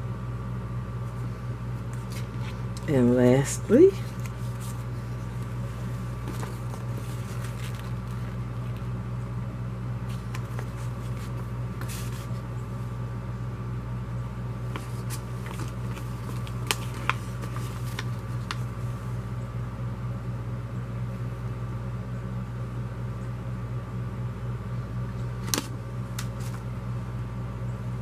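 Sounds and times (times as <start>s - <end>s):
steady low hum: 0.0s - 28.0s
paper rustling: 1.8s - 2.6s, 4.0s - 8.9s, 10.1s - 12.4s, 14.7s - 18.9s, 25.4s - 26.7s.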